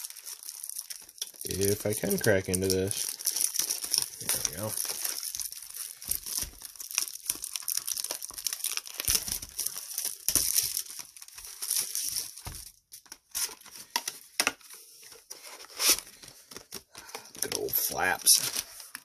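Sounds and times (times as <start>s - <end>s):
shrink-wrap crinkling and tearing: 0.0s - 19.0s.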